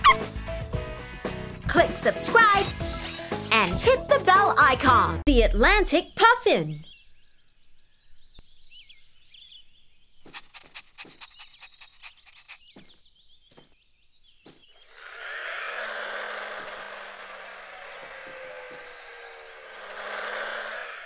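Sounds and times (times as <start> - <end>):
faint chirps: 6.7 - 21.0
toy car motor whirring: 14.9 - 21.0.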